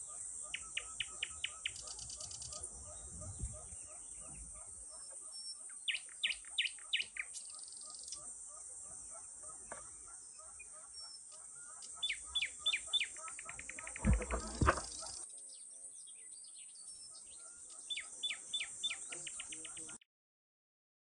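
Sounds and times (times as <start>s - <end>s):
birds singing: 0.0s - 20.0s
bird whistles and trills: 0.5s - 8.2s, 10.1s - 15.2s.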